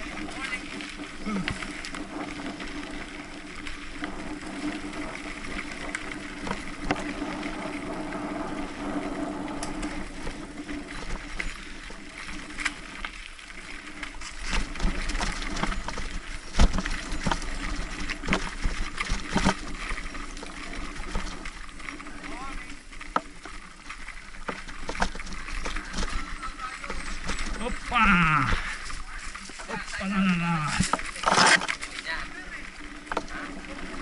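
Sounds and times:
wind rumble on microphone: 0.0 - 13.0
bike frame and chain rattling: 0.0 - 34.0
bike tyres on loose dirt: 0.0 - 34.0.

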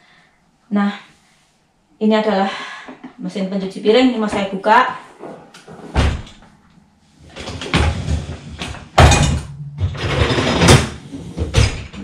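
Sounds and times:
dish rack rolling and rattling: 7.3 - 12.0
dishwasher door thumping open: 7.6 - 12.0.

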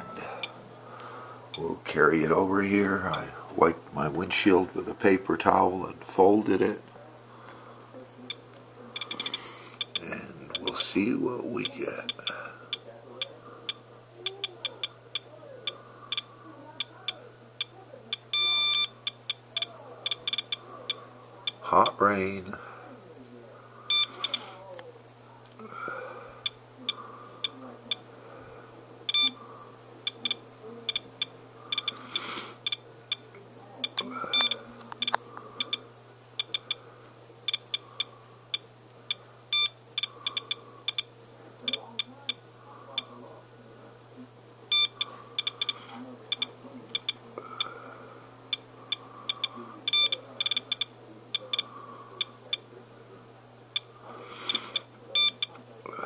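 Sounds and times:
dosimeter beeping: 0.0 - 0.6, 8.3 - 10.8, 11.6 - 22.0, 23.9 - 24.5, 26.4 - 28.1, 29.1 - 29.4, 30.0 - 36.8, 37.4 - 43.1, 44.7 - 47.8, 48.5 - 52.7, 53.7 - 55.6.

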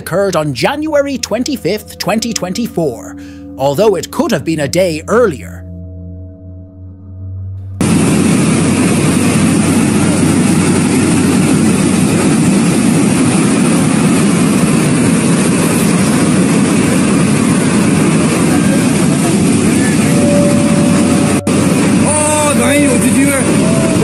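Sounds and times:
rushing roar of liquid waste: 7.8 - 24.0.

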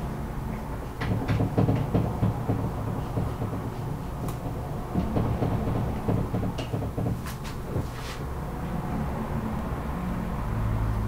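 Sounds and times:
marker tapping and scraping on whiteboard: 1.0 - 8.2.

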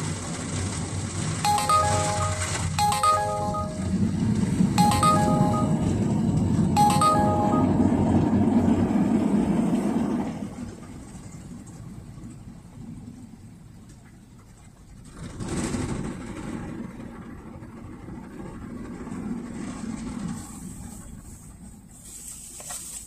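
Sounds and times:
electronic chime: 1.5 - 8.2.

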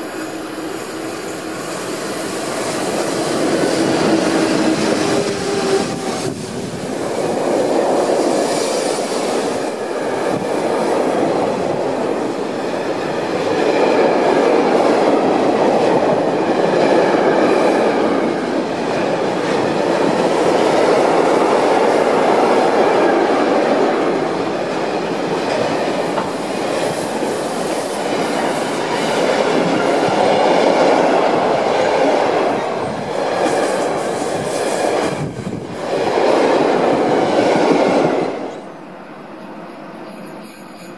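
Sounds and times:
train wheels rumbling on rail: 0.0 - 40.9.

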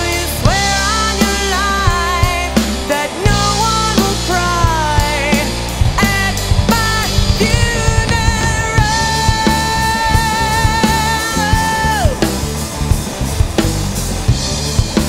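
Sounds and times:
drum kit: 0.0 - 15.0
electric bass: 0.0 - 15.0
lead guitar bending notes: 5.2 - 15.0.

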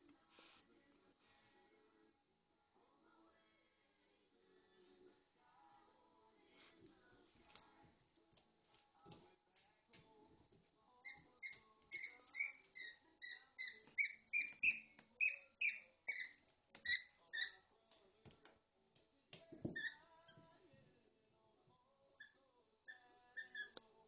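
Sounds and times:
rubber squeaky toy squeaks: 11.0 - 17.7, 19.7 - 20.4, 22.2 - 23.8.

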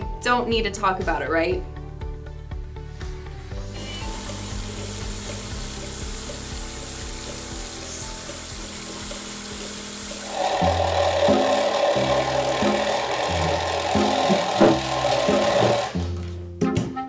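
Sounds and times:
background music: 0.0 - 17.0
watery suction hiss: 3.5 - 16.0.

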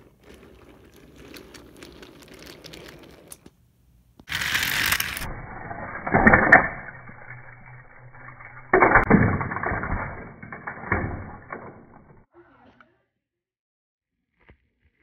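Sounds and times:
noisy clatter: 4.3 - 12.3.

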